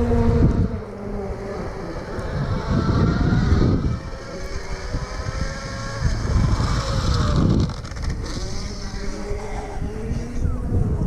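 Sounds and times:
distant car engine revving: 0:00.0 - 0:10.3
wind buffeting microphone: 0:00.0 - 0:11.0.

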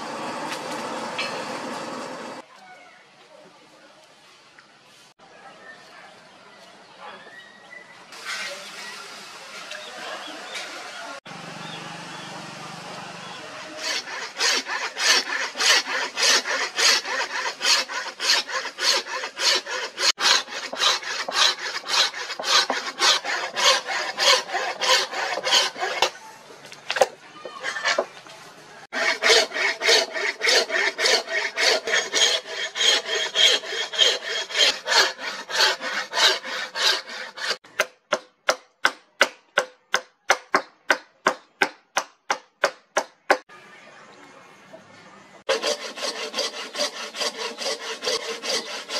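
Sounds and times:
hand saw cutting wood: 0:13.4 - 0:26.2, 0:26.9 - 0:28.2, 0:28.9 - 0:43.4, 0:45.5 - 0:48.9.

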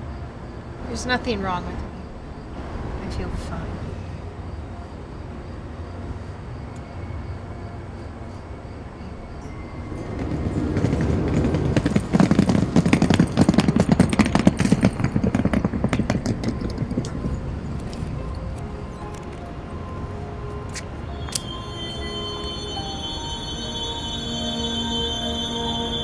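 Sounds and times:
train rumbling: 0:00.0 - 0:26.0
train wheels clattering over rails: 0:09.4 - 0:19.5.

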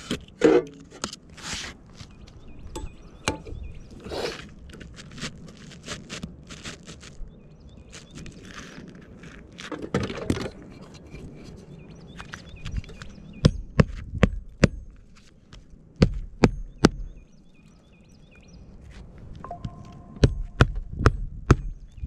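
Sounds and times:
shingles rustling: 0:00.0 - 0:02.4, 0:04.0 - 0:07.2, 0:07.8 - 0:13.1.

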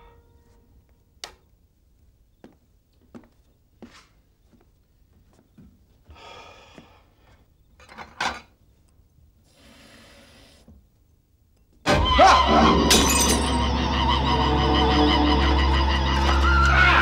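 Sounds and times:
glass breaking crash: 0:12.8 - 0:13.8.

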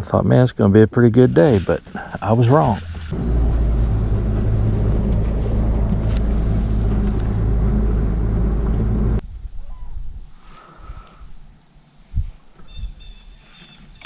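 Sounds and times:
outboard motor droning: 0:02.8 - 0:09.2.

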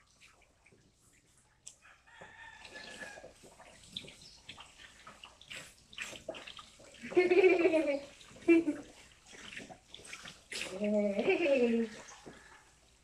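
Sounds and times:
hose water splashing in tub: 0:00.0 - 0:13.0
rooster crowing: 0:01.8 - 0:03.3.

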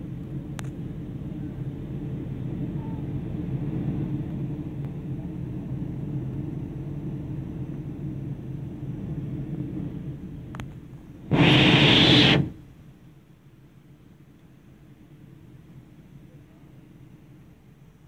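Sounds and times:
aircraft cabin engine drone: 0:00.0 - 0:13.9.

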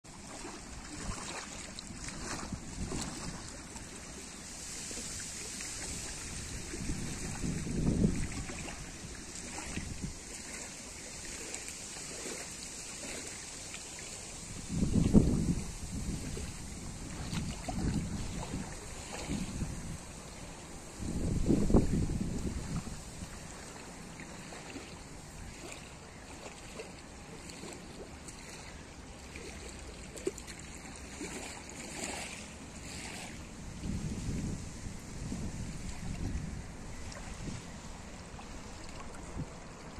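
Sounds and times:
wind hissing through reeds: 0:00.1 - 0:26.8, 0:30.8 - 0:39.9
wind gusts on microphone: 0:00.4 - 0:11.4, 0:14.4 - 0:23.9, 0:32.0 - 0:39.9.

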